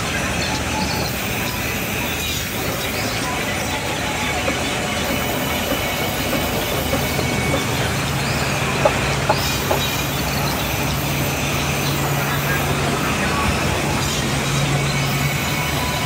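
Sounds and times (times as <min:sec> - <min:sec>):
band saw cutting timber: 0:00.0 - 0:16.0
wooden knocks: 0:04.4 - 0:07.7.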